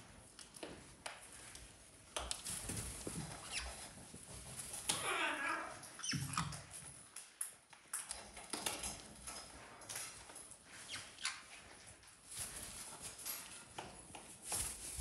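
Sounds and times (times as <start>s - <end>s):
parrots scrabbling taps and clicks: 6.0s - 11.4s.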